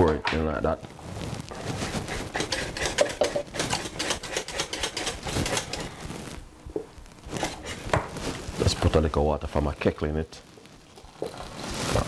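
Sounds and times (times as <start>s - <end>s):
whisk rattling in metal pot: 2.0s - 5.9s.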